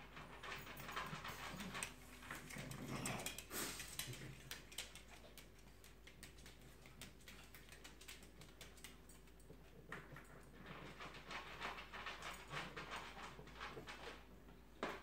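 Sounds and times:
dog claws clicking on tile: 0:00.2 - 0:14.2
breathy hiss: 0:03.5 - 0:04.0.

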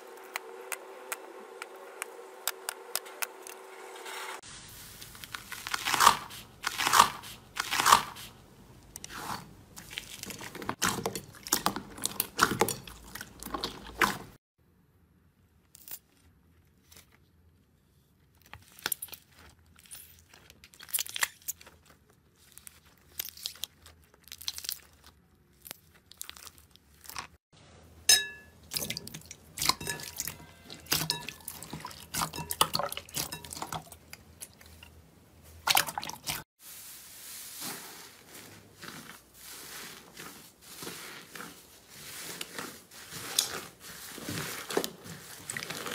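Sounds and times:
jelly cubes squelching: 0:04.8 - 0:14.4, 0:18.3 - 0:27.4, 0:28.6 - 0:36.5, 0:37.2 - 0:45.9.

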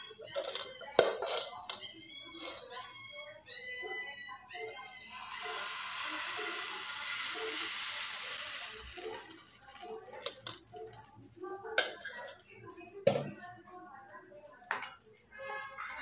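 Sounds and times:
batter sizzling on hot pan: 0:04.7 - 0:11.7.

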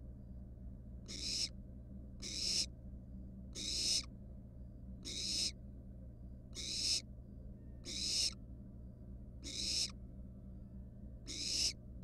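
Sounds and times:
low steady hum: 0:00.0 - 0:12.0
owl nestlings hissing: 0:01.1 - 0:01.5, 0:02.2 - 0:02.6, 0:03.6 - 0:04.0, 0:05.1 - 0:05.5, 0:06.6 - 0:07.0, 0:07.9 - 0:08.3, 0:09.4 - 0:09.9, 0:11.3 - 0:11.7.

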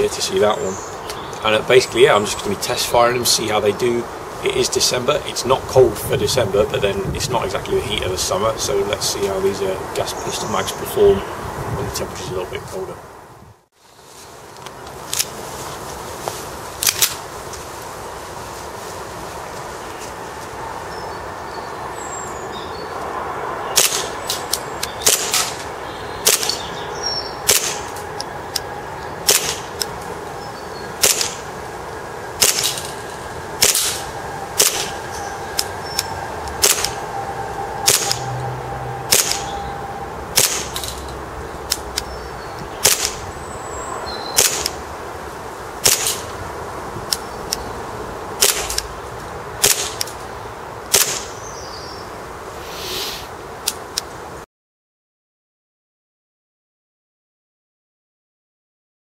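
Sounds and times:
airsoft pistol shots: 0:23.8 - 0:24.2, 0:25.0 - 0:25.6, 0:26.2 - 0:26.6, 0:27.5 - 0:27.9, 0:29.3 - 0:29.7, 0:31.0 - 0:31.4, 0:32.4 - 0:32.8, 0:34.6 - 0:34.9, 0:37.9 - 0:38.2, 0:39.1 - 0:39.5, 0:40.4 - 0:40.8, 0:42.8 - 0:43.2, 0:44.4 - 0:44.8, 0:45.8 - 0:46.2, 0:48.4 - 0:48.8, 0:49.6 - 0:50.0, 0:50.9 - 0:51.3.

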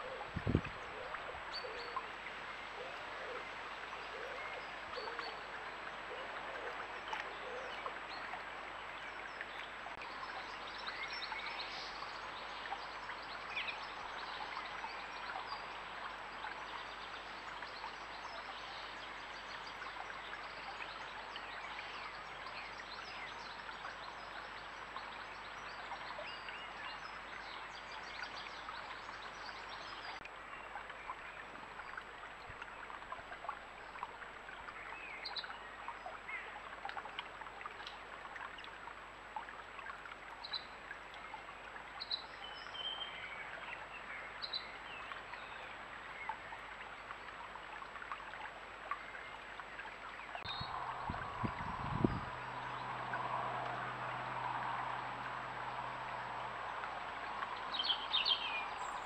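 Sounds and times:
stream babbling: 0:00.0 - 0:59.0.

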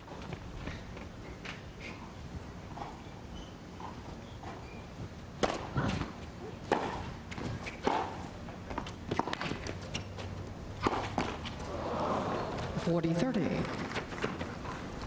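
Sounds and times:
racket striking tennis ball: 0:06.7 - 0:08.2, 0:10.8 - 0:11.5.

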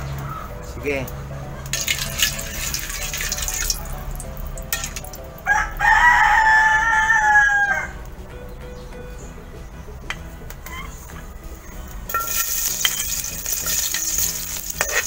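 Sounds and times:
ladle stirring hissing oil: 0:01.8 - 0:04.0, 0:12.1 - 0:15.0
rooster crowing: 0:05.4 - 0:08.0.

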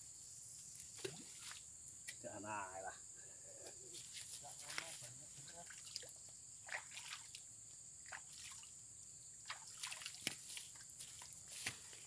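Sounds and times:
water dripping and splashing: 0:01.0 - 0:01.7, 0:04.6 - 0:08.8, 0:09.4 - 0:11.9.

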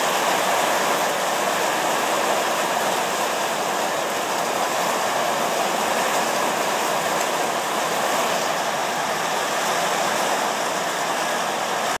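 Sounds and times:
heavy rain pouring: 0:00.0 - 0:12.0.

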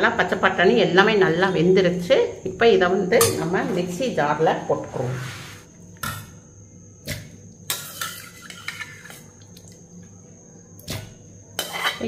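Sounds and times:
metal ladle clinking against pans: 0:03.2 - 0:03.6.

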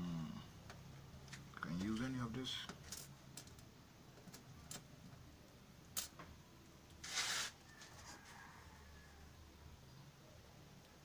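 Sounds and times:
brief scrape: 0:07.0 - 0:08.4.

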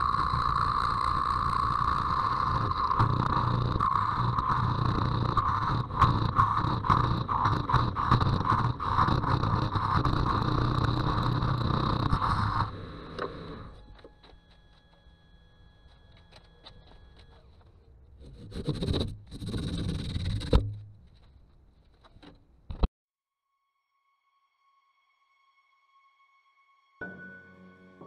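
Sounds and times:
lathe humming: 0:00.0 - 0:14.7
parting tool scraping wood: 0:02.4 - 0:13.9, 0:16.0 - 0:22.4.

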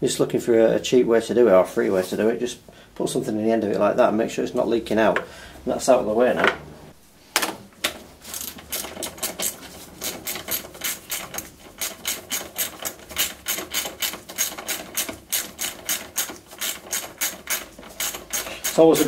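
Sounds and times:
ratchet wrench clicking: 0:08.4 - 0:19.0.

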